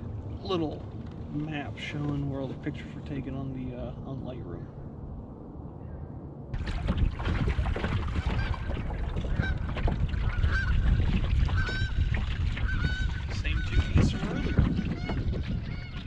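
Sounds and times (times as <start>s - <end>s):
wind buffeting microphone: 0.0s - 16.0s
geese honking: 9.3s - 16.0s.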